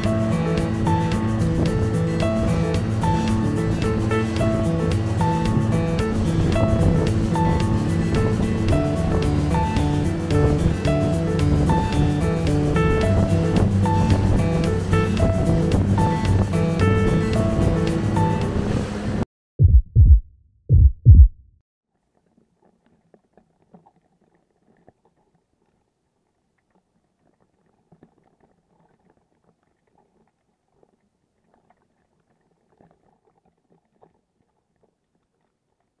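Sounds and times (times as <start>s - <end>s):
deep thumps: 19.6s - 21.6s
faint crackles: 21.9s - 36.0s.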